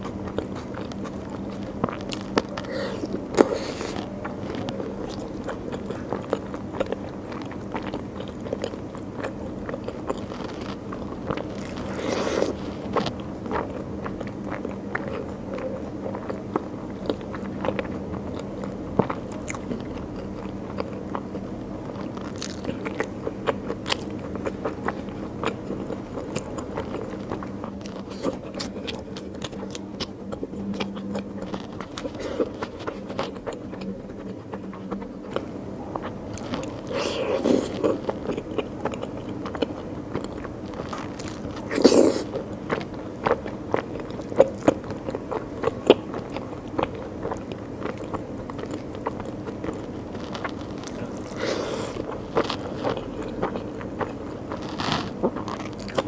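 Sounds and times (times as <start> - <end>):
wet chewing with mouth clicks: 0.0 - 56.0.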